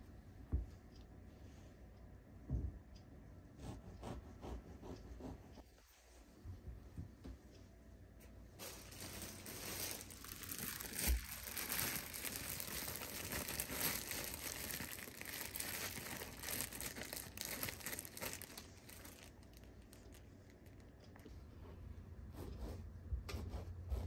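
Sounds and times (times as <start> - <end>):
plastic bag crinkling: 8.6 - 20.9.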